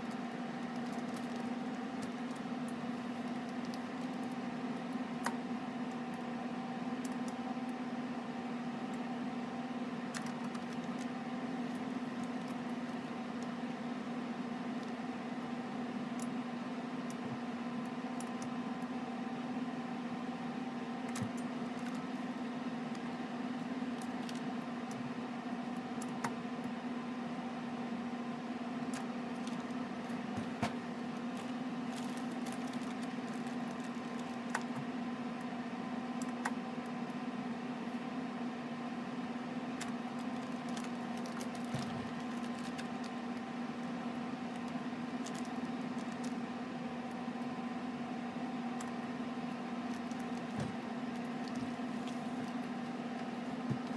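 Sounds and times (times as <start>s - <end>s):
plastic bags crinkling: 0.0s - 2.4s, 29.3s - 30.3s, 31.1s - 34.7s, 39.8s - 43.4s, 45.2s - 46.4s, 49.9s - 53.9s
steady machine hum: 0.0s - 53.9s.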